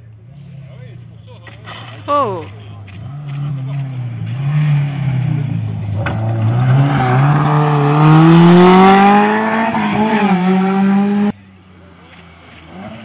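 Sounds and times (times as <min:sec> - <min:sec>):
rally car engine accelerating: 0:02.7 - 0:11.4.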